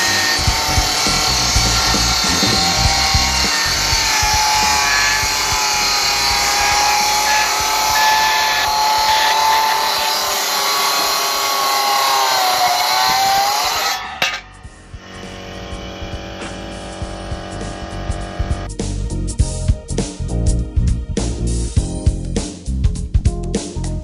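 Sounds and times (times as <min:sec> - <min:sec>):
circular saw cutting wood: 0:00.0 - 0:18.7.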